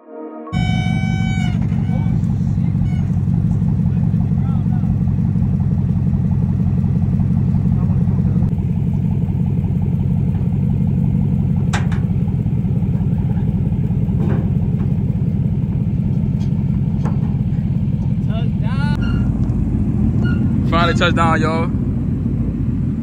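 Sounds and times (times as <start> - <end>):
pickup engine rumble: 0.6 - 23.0
sharp knocks: 11.6 - 12.2, 16.2 - 17.6.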